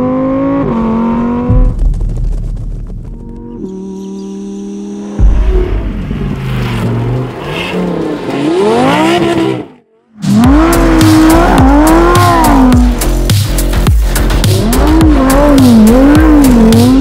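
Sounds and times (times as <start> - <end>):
car engine revving hard: 6.8 - 13.1, 14.2 - 17.0.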